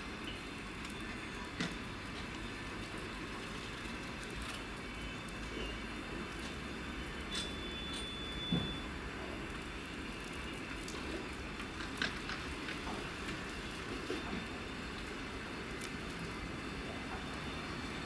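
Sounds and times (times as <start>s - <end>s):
wheels clicking over rail joints: 10.2s - 18.0s.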